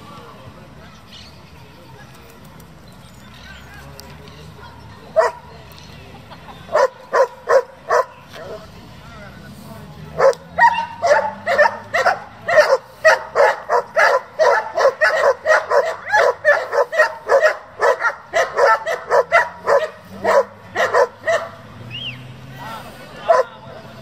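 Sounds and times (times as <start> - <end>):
dog barking rapidly: 6.8 - 8.1, 10.2 - 21.6, 23.3 - 23.5.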